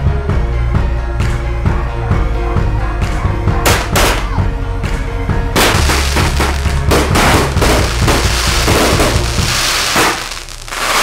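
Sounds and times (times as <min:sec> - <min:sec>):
background music with bass: 0:00.0 - 0:11.0
fireworks bursting and crackling: 0:05.6 - 0:11.0.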